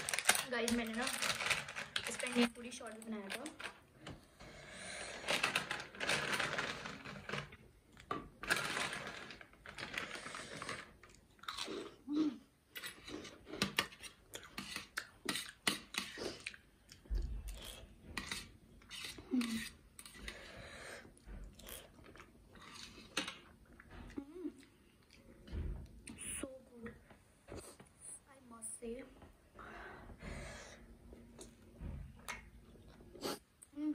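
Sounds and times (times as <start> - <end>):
plastic snack packet crinkling: 0.0 - 3.8, 5.2 - 11.7
crunching and chewing: 5.1 - 12.1, 12.8 - 20.4, 21.1 - 25.4.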